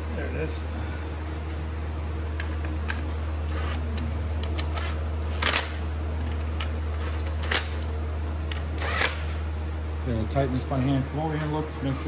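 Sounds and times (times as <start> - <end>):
steady low hum: 0.0 - 12.0
power driver whining: 2.4 - 9.4.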